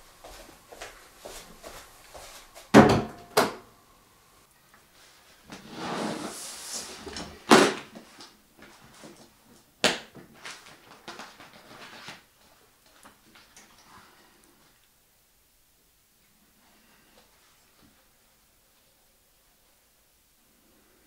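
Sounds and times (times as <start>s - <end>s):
briefcase scraping on desk: 5.6s - 7.2s
paper rustling: 10.3s - 13.6s.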